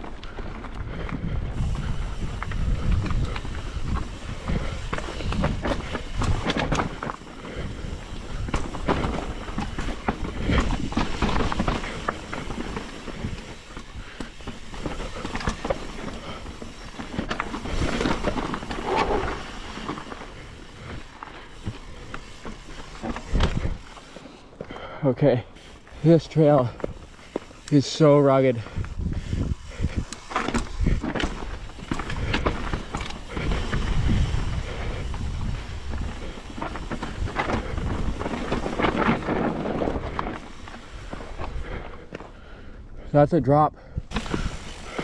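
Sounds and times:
bike tyres crunching over rock: 0.0 - 42.8, 44.1 - 45.0
bike knocks and rattles: 1.2 - 24.7.

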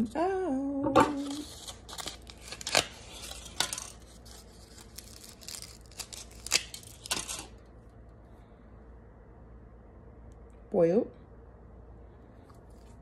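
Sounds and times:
aluminium foil crinkling: 1.0 - 7.7.

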